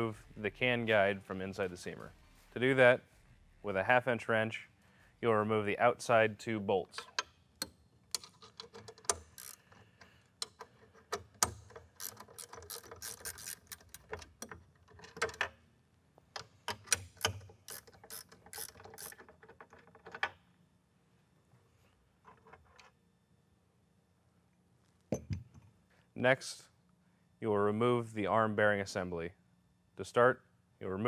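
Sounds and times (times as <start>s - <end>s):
ratchet wrench clicking: 7.1s - 9.8s, 11.3s - 14.5s, 16.9s - 19.2s.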